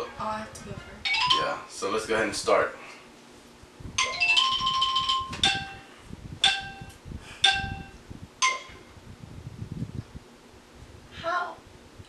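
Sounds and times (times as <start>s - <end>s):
electronic chime: 4.0s - 8.9s
countdown beeps: 5.4s - 8.8s.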